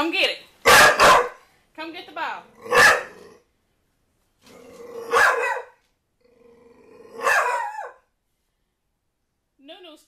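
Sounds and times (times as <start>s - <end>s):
puppy barking: 0.6s - 1.5s, 2.6s - 3.2s, 5.1s - 5.8s, 7.2s - 8.0s
puppy growling: 2.4s - 3.5s, 4.4s - 5.4s, 6.2s - 7.8s.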